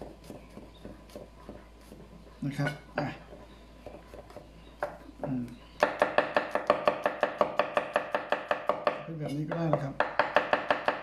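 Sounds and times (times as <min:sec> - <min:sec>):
knife chopping on wooden board: 0:02.6 - 0:11.0.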